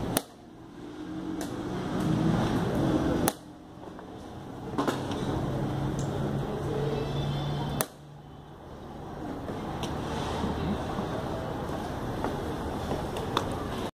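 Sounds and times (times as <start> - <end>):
background noise: 0.0 - 13.9.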